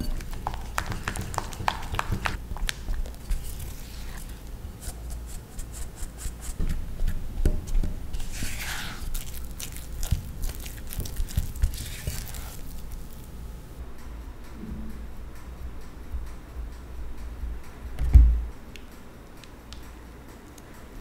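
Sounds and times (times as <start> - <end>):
spatula folding flour into butter: 0.0 - 7.2, 8.1 - 13.4.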